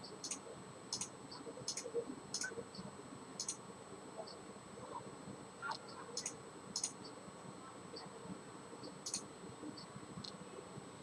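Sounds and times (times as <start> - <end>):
faint room noise: 0.0 - 11.0
computer mouse clicking: 0.2 - 1.1, 1.7 - 2.5, 3.4 - 3.6, 6.2 - 7.0.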